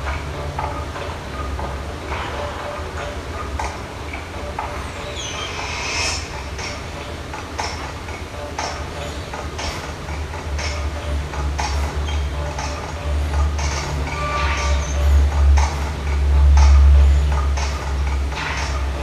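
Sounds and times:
sparse ticking beat: 0.0 - 19.0
deep droning bass: 10.4 - 19.0.

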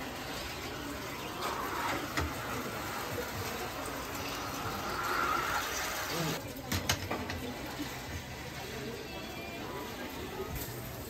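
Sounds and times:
steam hissing and sizzling: 0.0 - 6.4.

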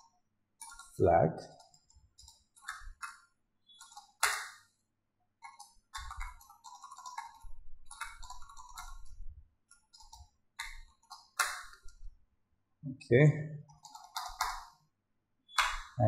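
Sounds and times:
computer keyboard typing: 0.6 - 4.6, 5.4 - 12.0, 13.6 - 14.8.

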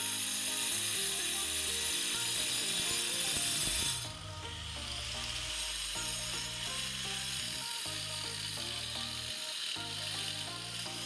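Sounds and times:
angle grinder cutting masonry: 0.0 - 11.0
electronic music: 0.0 - 11.0.

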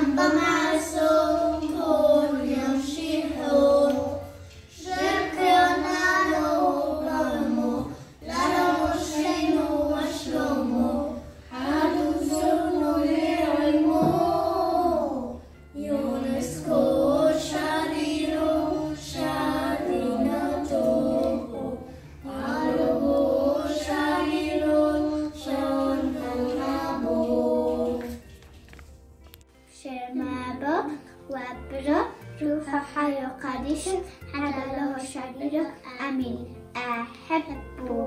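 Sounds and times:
children singing a hymn: 0.0 - 28.3.

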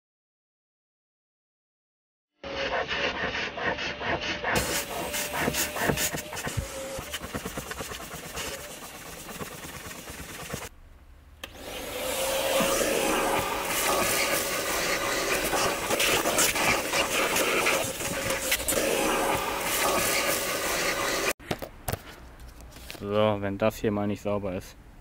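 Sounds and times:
vacuum cleaner running: 3.6 - 10.7, 11.4 - 21.4
nozzle rubbing on fabric: 4.5 - 10.7.

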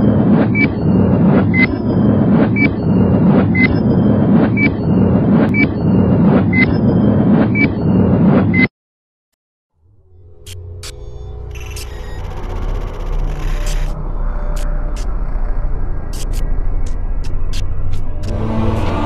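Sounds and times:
steady rumbling whir: 10.0 - 19.0.

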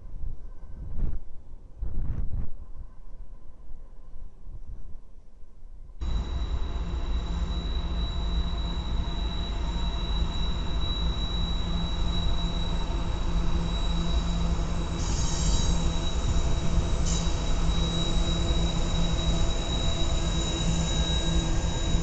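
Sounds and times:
high-pitched wheel squeal: 6.0 - 22.0.

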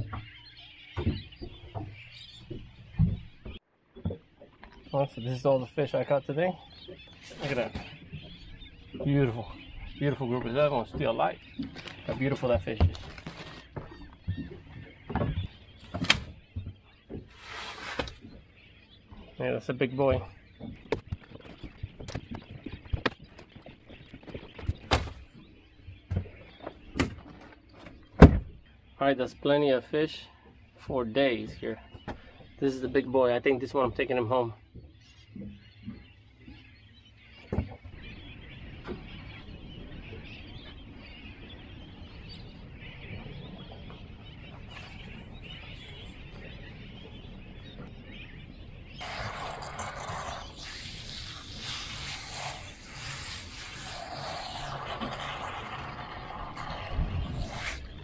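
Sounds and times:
seabirds calling: 0.0 - 58.0
water hose spraying: 49.0 - 57.9.

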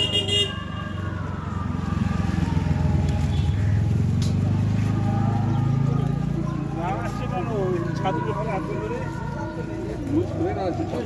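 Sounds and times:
motorcycle engine running: 0.6 - 9.6.

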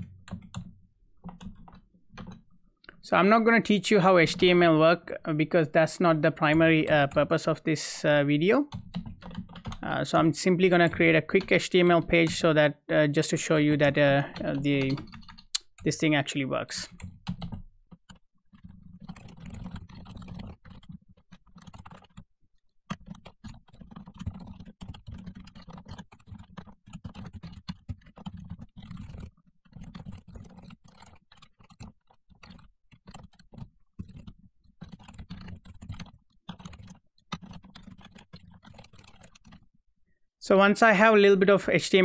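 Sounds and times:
typing on computer keyboard: 0.0 - 2.4, 8.7 - 12.4, 13.7 - 16.1, 16.8 - 39.7.

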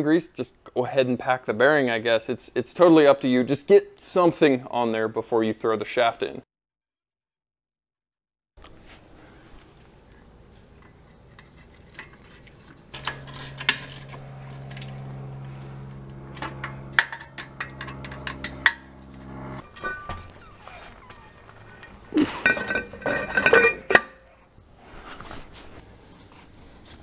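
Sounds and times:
steady low hum: 12.0 - 24.2
metal tools clinking: 12.9 - 15.4, 19.6 - 24.3.

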